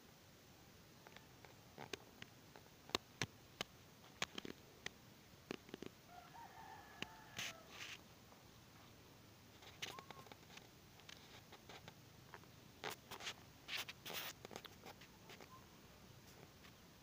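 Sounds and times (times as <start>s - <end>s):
soft rustles and scrapes: 5.6s - 8.0s, 8.7s - 16.8s.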